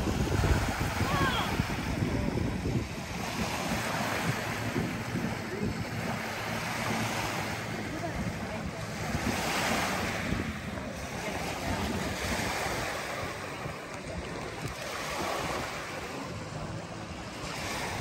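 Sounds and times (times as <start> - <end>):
waves lapping on beach: 0.0 - 18.0
wind buffeting microphone: 0.0 - 18.0.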